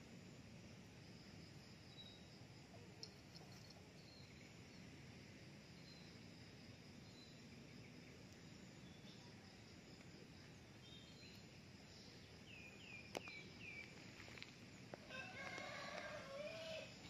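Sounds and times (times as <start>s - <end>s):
rooster crowing: 15.0s - 17.0s.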